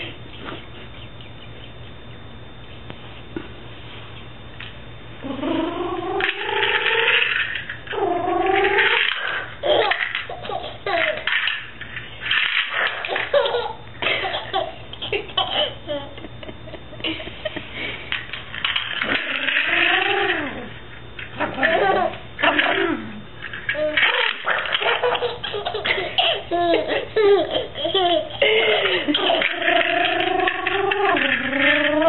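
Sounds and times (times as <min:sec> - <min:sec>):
baby laughing: 0:08.9 - 0:11.5, 0:12.7 - 0:16.3, 0:23.8 - 0:31.3.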